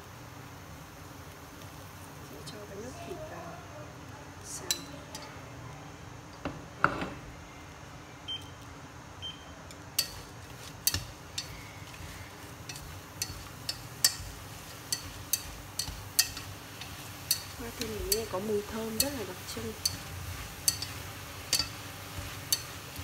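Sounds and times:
chopsticks knocking on metal pot: 10.8 - 21.8.

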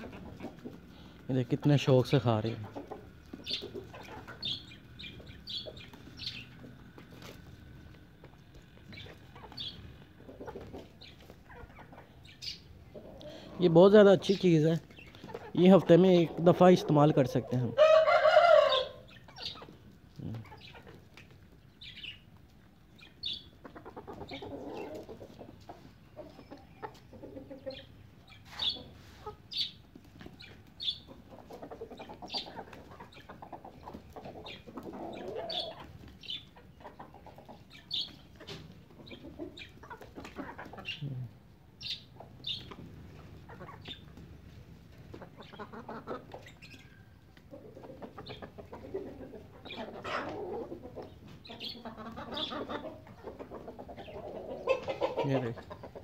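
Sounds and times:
beaks pecking on concrete: 0.0 - 56.0
chickens clucking softly: 0.0 - 56.0.

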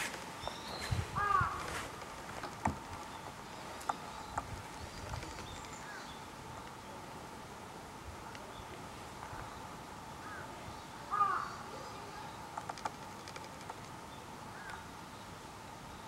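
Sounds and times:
crow cawing: 1.2 - 1.8, 11.1 - 11.7
sharp clicks: 12.5 - 14.0.

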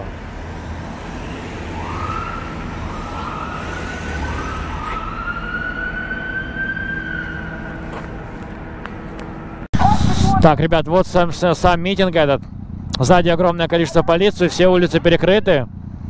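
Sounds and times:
low traffic rumble: 0.0 - 16.0
police siren whooping and wailing: 1.1 - 7.9.

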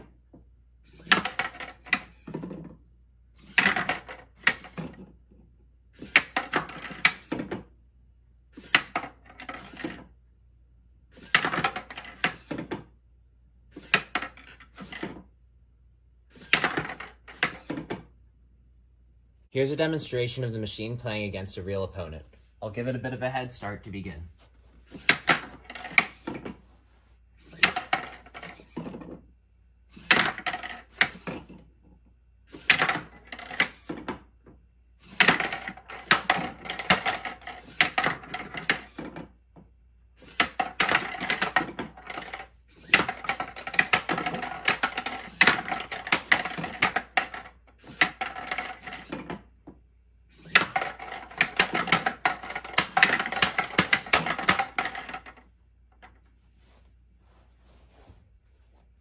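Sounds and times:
plastic balls clattering on tabletop: 1.0 - 2.8, 3.4 - 5.1, 11.2 - 12.8, 16.4 - 18.0, 27.5 - 29.2, 30.0 - 31.6, 32.6 - 34.2, 35.1 - 39.3, 40.2 - 49.8, 50.4 - 56.2.

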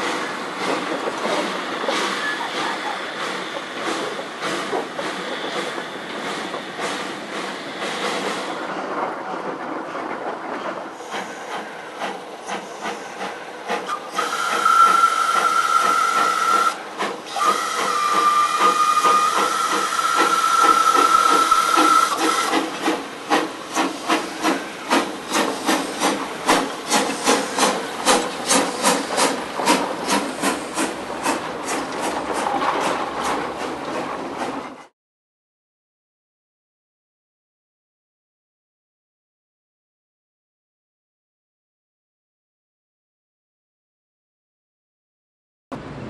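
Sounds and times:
steam locomotive chuffing: 0.0 - 34.9
steam whistle blasts: 13.9 - 22.5.

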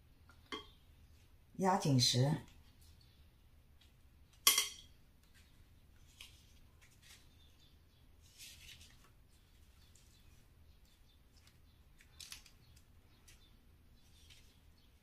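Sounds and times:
leaves rustling: 8.2 - 10.2.

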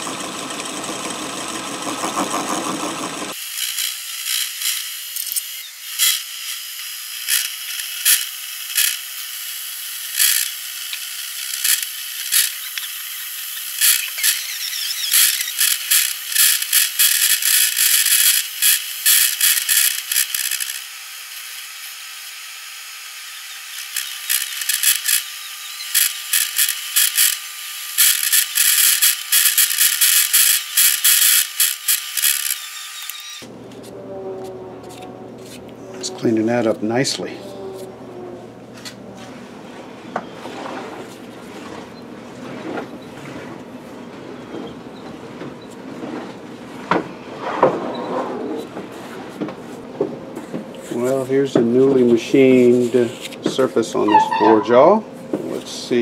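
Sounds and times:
lathe tool cutting spinning metal: 0.0 - 37.8.

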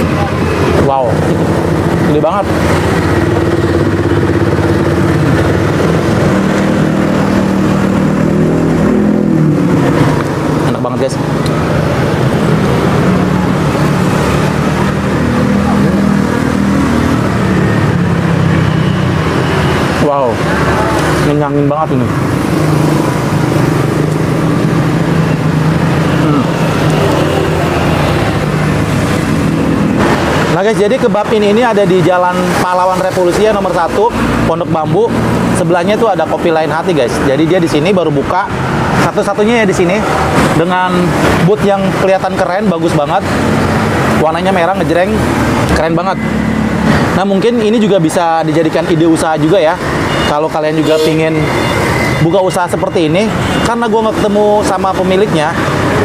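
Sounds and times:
vehicle engine running: 0.0 - 20.0
roadside noise: 0.0 - 56.0
second engine: 0.0 - 56.0.

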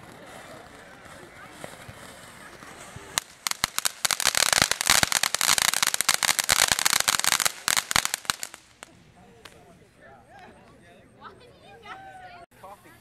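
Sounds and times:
firework sharp crack: 0.0 - 9.6
firework crackling pops: 0.0 - 9.7.

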